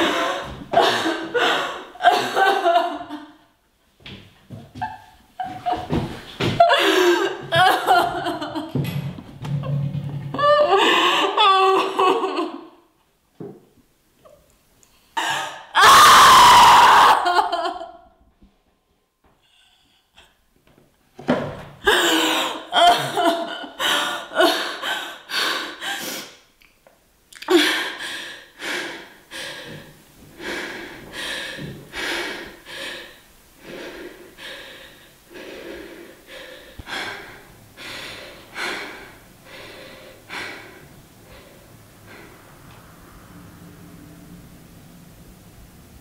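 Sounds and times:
woman sobbing: 0.0s - 3.3s, 6.6s - 8.7s, 10.4s - 12.7s, 15.2s - 18.0s, 21.8s - 26.1s.

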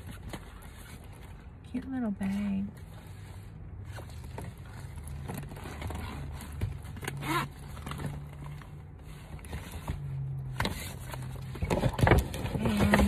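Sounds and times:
bag unzipping: 5.4s - 8.0s.

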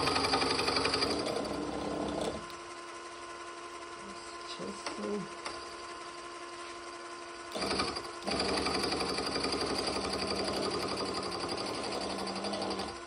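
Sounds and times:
cutter grinding into cast iron: 0.0s - 2.5s
milling machine spindle hum: 0.0s - 13.0s.

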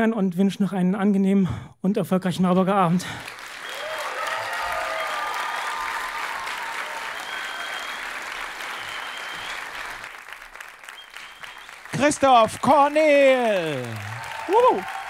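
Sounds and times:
audience applauding: 3.0s - 15.0s.

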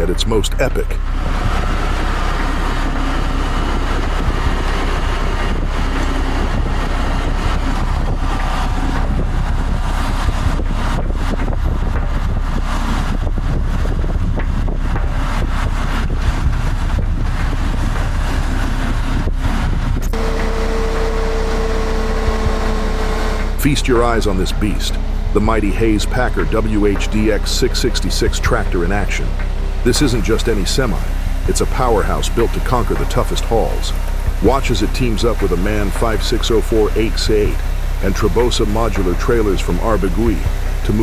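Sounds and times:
diesel truck engines rumbling: 0.0s - 41.0s
wind noise: 0.0s - 41.0s
steady single tone: 20.1s - 25.4s.

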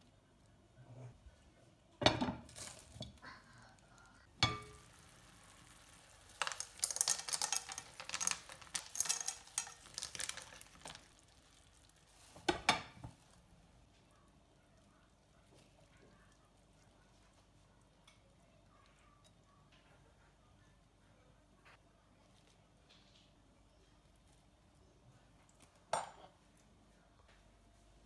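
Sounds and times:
beans dropping into sizzling pan: 2.3s - 3.2s, 4.4s - 13.3s.

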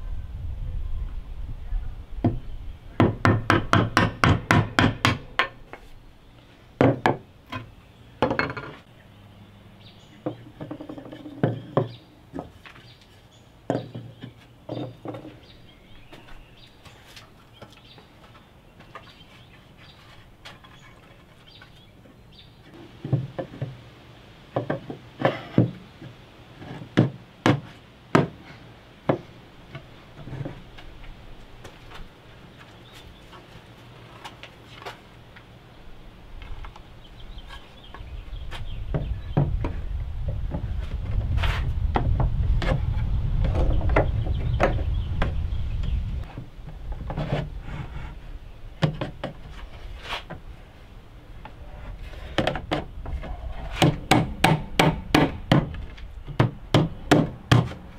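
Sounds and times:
wood knocking on a workbench: 8.2s - 8.8s.

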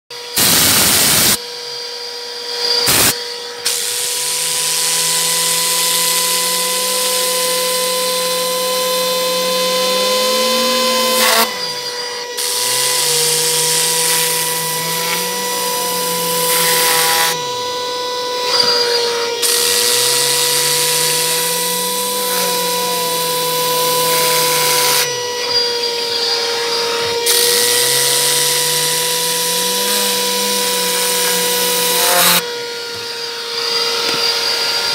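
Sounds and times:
compressed air gun blasting: 0.4s - 1.4s, 2.8s - 8.4s.

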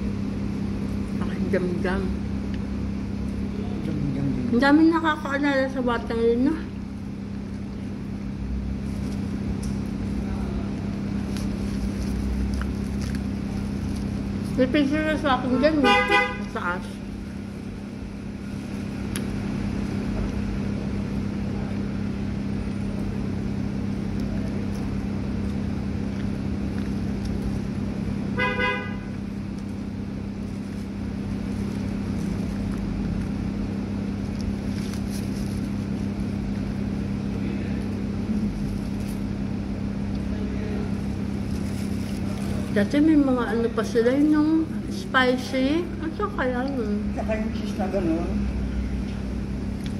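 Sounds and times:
traffic rumble: 0.0s - 49.9s
vehicle horn toot: 15.4s - 16.6s, 28.4s - 29.2s.

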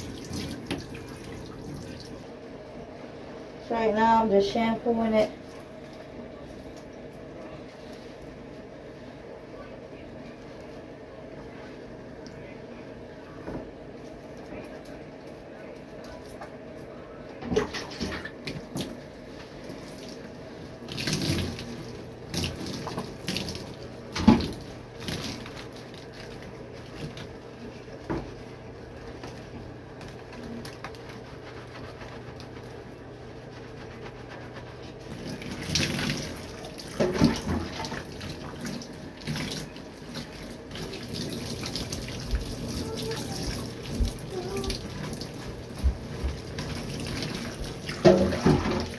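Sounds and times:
water running into bathtub: 0.0s - 2.8s, 17.4s - 48.9s
wet splashes: 19.6s - 27.4s, 35.1s - 48.9s
hair being scrubbed by hand: 25.0s - 36.8s, 38.0s - 48.1s.

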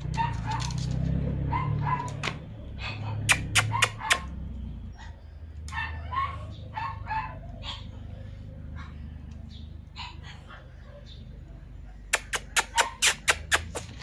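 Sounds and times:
small dogs whimpering: 4.9s - 11.3s, 12.2s - 14.0s
sharp clicks: 12.1s - 14.0s.

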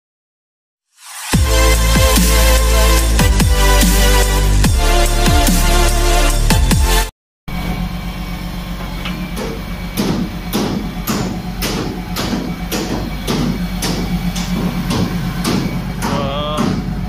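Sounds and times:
diesel engine idling: 6.8s - 17.0s.

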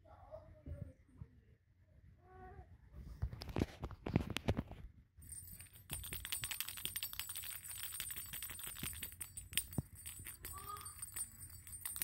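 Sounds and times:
cat toys rattling and jingling: 5.2s - 12.0s
thin high ringing: 5.2s - 12.0s.

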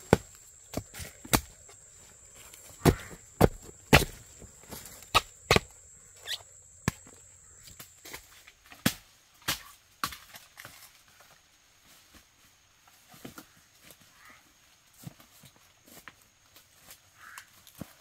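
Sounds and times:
chopping bamboo knocks: 0.1s - 1.6s, 2.8s - 4.2s.

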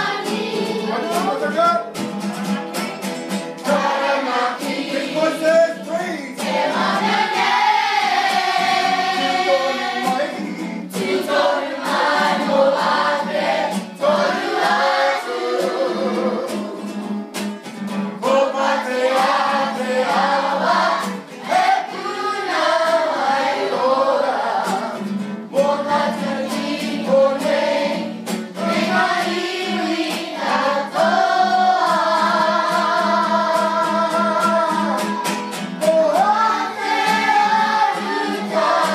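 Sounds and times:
group singing: 0.0s - 1.5s, 3.5s - 38.9s.

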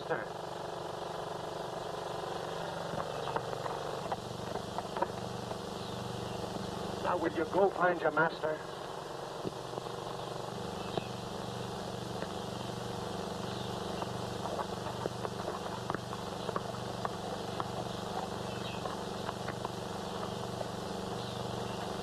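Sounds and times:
film soundtrack hiss and hum: 0.0s - 22.0s
small scattered clicks: 13.5s - 20.7s.

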